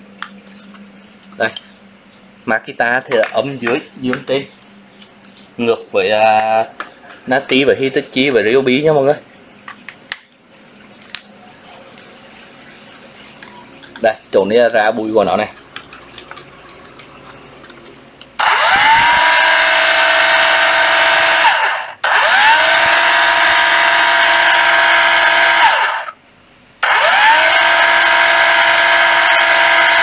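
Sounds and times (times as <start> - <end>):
cordless planer motor whine: 18.4 - 26.2, 26.8 - 30.0.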